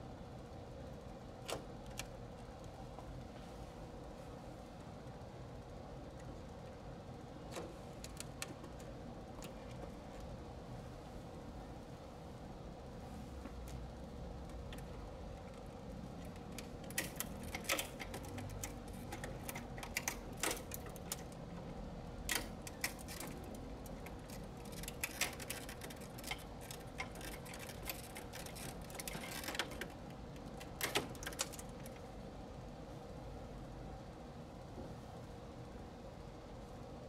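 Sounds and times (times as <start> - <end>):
faint steady hum: 0.0 - 37.0
clicks and rattles of wiring: 7.5 - 10.3, 14.6 - 32.1.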